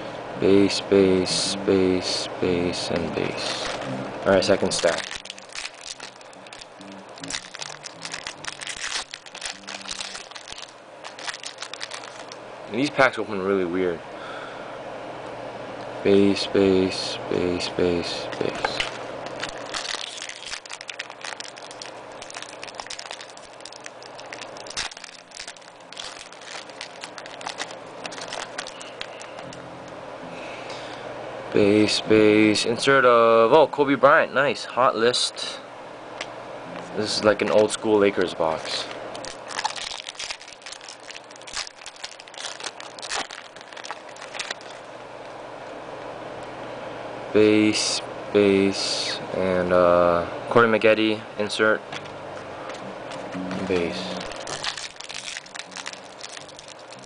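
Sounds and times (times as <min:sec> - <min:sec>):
foil wrapper crinkling: 0:03.1 - 0:12.4, 0:18.2 - 0:29.5, 0:37.3 - 0:44.9, 0:53.1 - 0:57.0.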